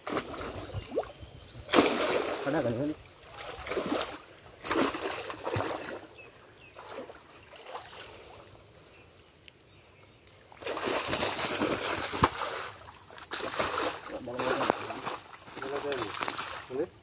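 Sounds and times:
water splashing from fishing net: 0:00.0 - 0:01.1, 0:01.7 - 0:06.1, 0:06.8 - 0:08.4, 0:10.4 - 0:16.8
trickling water: 0:00.0 - 0:17.0.

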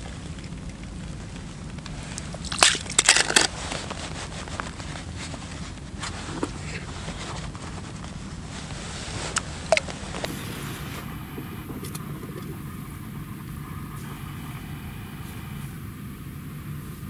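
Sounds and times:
steady low rumble: 0:07.5 - 0:17.0.

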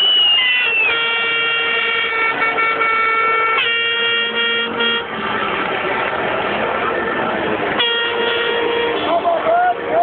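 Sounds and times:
horn blasts: 0:00.0 - 0:05.4, 0:07.7 - 0:10.0
grandstand crowd noise: 0:00.0 - 0:10.0.

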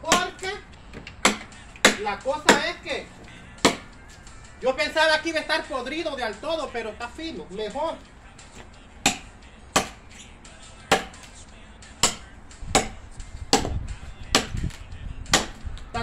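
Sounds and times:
machete chopping wood: 0:00.0 - 0:04.2, 0:07.8 - 0:10.1, 0:10.8 - 0:11.4, 0:12.0 - 0:15.9.

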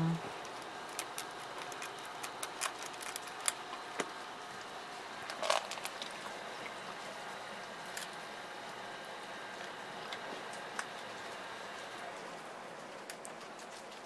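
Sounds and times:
cat eating from metal bowl: 0:00.5 - 0:03.9.

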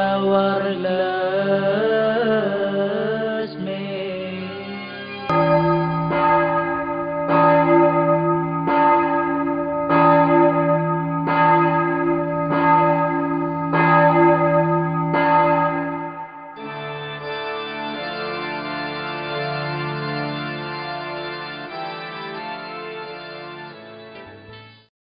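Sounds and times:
church bell tolling: 0:04.4 - 0:24.6.

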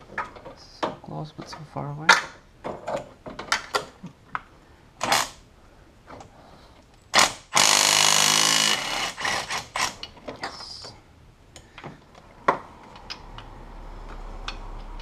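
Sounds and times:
cordless power tool spinning bolt: 0:07.2 - 0:10.1.

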